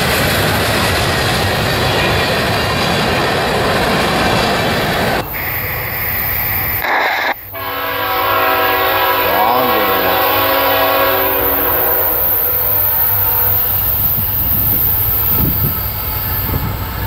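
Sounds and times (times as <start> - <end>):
train rumbling: 0.0 - 17.0
train horn chord: 7.5 - 13.8.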